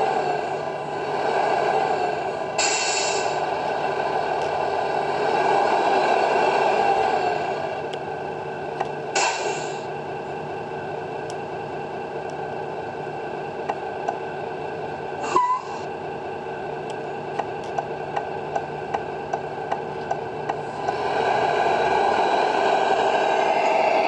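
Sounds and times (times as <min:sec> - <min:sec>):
truck engine idle sound: 0:00.0 - 0:24.0
short hisses: 0:02.6 - 0:03.4.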